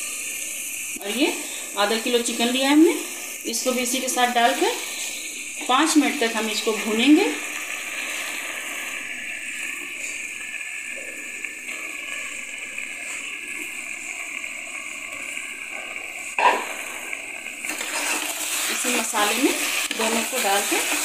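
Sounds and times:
spices sizzling in a pot: 0.0 - 21.0.

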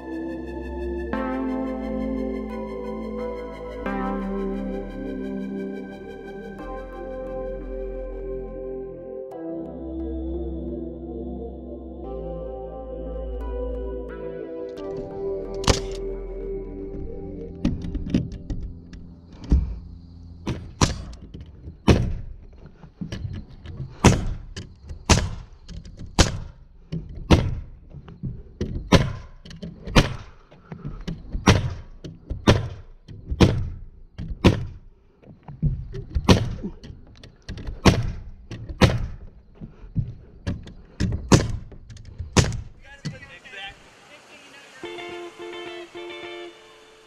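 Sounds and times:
nail gun shots: 15.6 - 16.0, 20.5 - 21.2, 24.0 - 25.6, 26.2 - 26.6, 30.0 - 30.3, 31.4 - 33.8, 34.4 - 34.8, 37.8 - 39.2, 41.3 - 41.7, 42.4 - 42.8.

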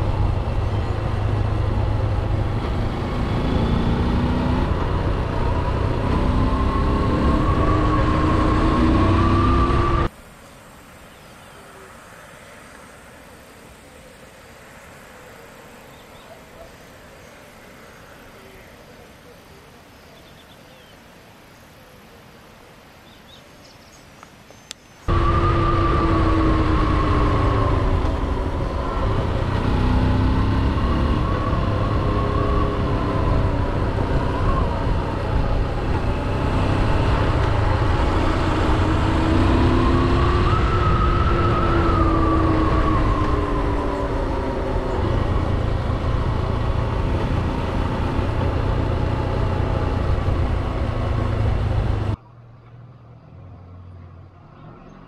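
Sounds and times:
motorcycle engine revving: 0.0 - 10.1, 25.1 - 52.2
wind rumble on microphone: 25.1 - 52.2.

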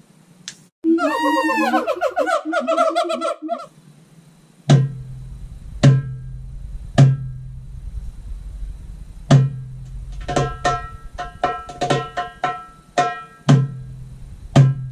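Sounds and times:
deep goblet drum strokes: 4.7 - 14.9
sharp high drum strokes: 9.2 - 14.9.

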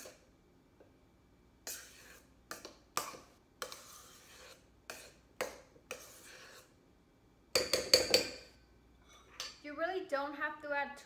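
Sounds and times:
spatula scraping metal bowl: 0.0 - 0.2, 1.6 - 6.8.

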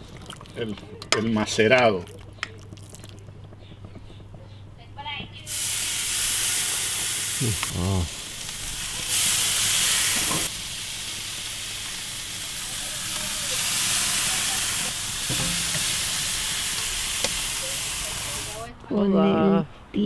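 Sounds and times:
steaks sizzling on grill: 5.5 - 18.7.

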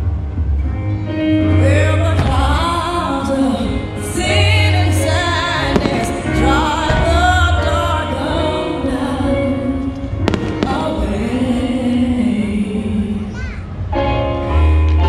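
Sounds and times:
song with singing: 0.8 - 15.0
fireworks bangs: 5.7 - 7.8, 10.2 - 11.4.

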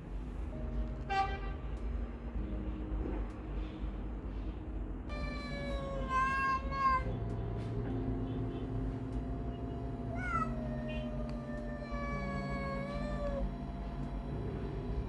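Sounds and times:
cat yowling: 5.1 - 7.1, 10.0 - 13.6
cat growling: 10.0 - 13.6.

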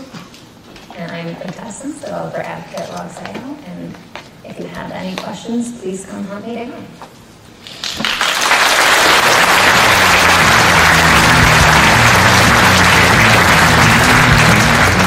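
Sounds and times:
audience applauding: 7.8 - 15.0
rock music: 9.7 - 15.0.

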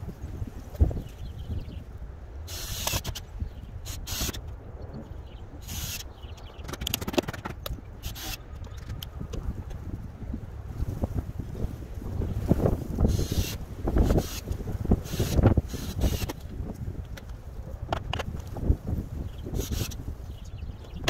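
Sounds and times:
wind rumbling on microphone: 0.0 - 21.0
short hissing bursts: 5.6 - 6.0, 13.1 - 16.3.

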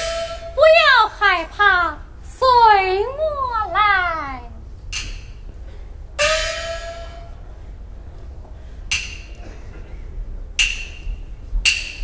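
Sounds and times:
wooden percussion strokes: 4.9 - 7.6.

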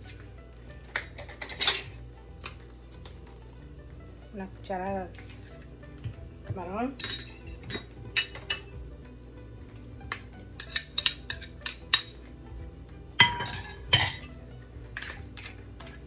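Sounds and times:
spoon clinking against pot: 7.0 - 8.7, 10.1 - 12.2.

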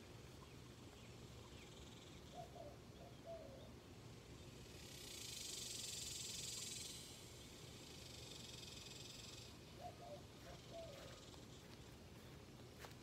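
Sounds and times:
steady high hiss: 3.6 - 11.6.

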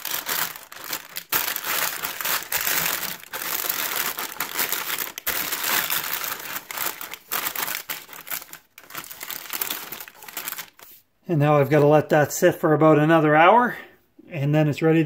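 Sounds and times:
parchment paper crinkling: 0.0 - 11.0.

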